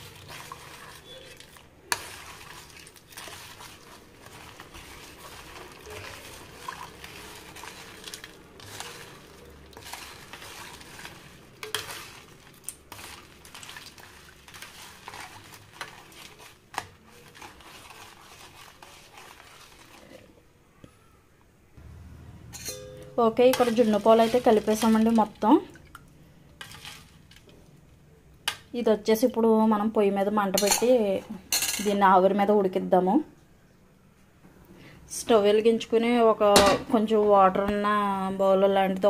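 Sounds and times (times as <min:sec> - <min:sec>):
spoon scraping a metal pot: 0:00.0 - 0:20.3, 0:22.5 - 0:25.2, 0:26.6 - 0:27.4, 0:30.6 - 0:30.9
spoon clinking on metal: 0:22.6 - 0:23.7.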